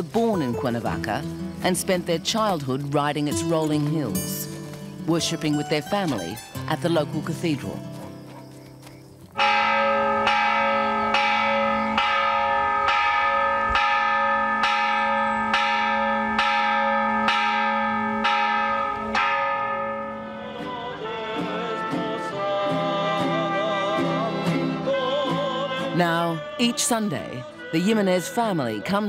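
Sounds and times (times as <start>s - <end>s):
guitar accompaniment: 0.0s - 29.0s
church bell tolling: 9.4s - 22.3s
person singing: 20.1s - 29.0s.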